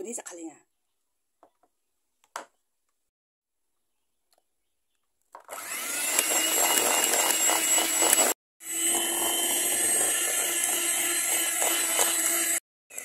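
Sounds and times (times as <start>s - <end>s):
electric hand mixer whirring: 5.5s - 13.0s.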